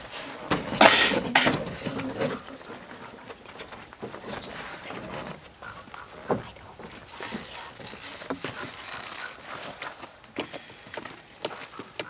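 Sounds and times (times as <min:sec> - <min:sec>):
chairs scraping on wooden floor: 0:00.0 - 0:02.5.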